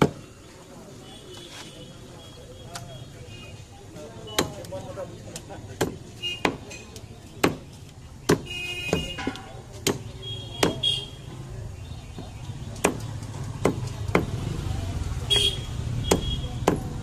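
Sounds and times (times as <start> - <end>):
distant street traffic rumble: 0.0 - 17.0
cleaver chopping on wooden block: 5.4 - 6.7, 7.4 - 10.9, 12.8 - 14.4, 16.0 - 17.0.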